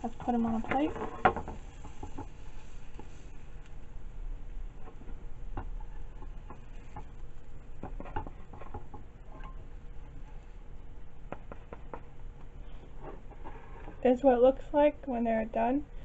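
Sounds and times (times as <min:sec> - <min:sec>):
spatula scraping frying pan: 0:00.0 - 0:03.5
low steady hum: 0:00.0 - 0:16.0.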